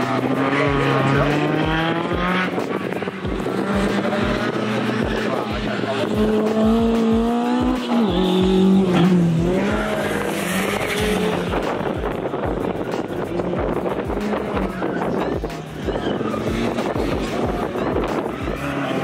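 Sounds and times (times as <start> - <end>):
car engine revving: 0.0 - 19.0
tyre squeal: 15.8 - 17.5.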